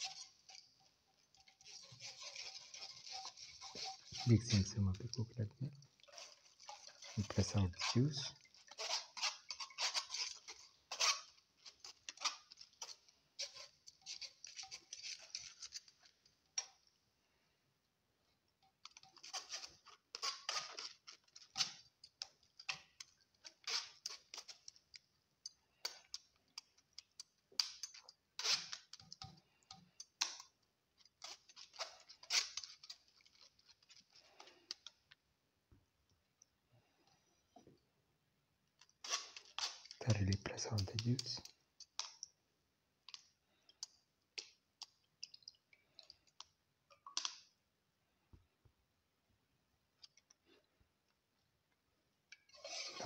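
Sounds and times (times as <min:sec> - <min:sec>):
metal spoon scraping wire strainer: 0:00.0 - 0:05.2, 0:06.0 - 0:16.1, 0:27.6 - 0:29.3, 0:31.2 - 0:34.9, 0:52.4 - 0:53.0.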